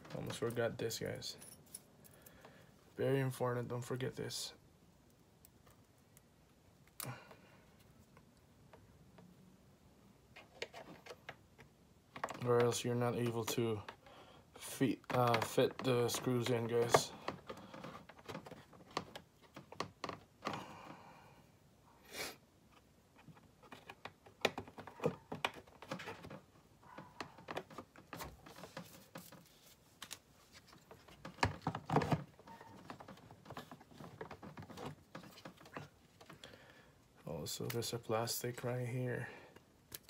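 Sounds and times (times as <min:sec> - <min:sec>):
plastic parts clicking and knocking: 0:10.3 - 0:21.0, 0:22.7 - 0:29.4, 0:30.6 - 0:36.6.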